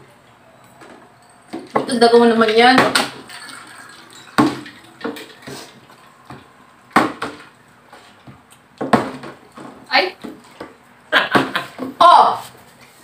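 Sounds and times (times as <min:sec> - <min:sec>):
glassware knocking and clinking: 0:01.2 - 0:07.5.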